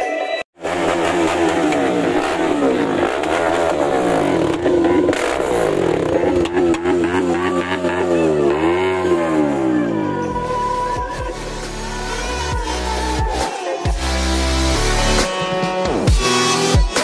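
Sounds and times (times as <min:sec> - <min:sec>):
motorcycle engine revving: 0:00.6 - 0:13.3.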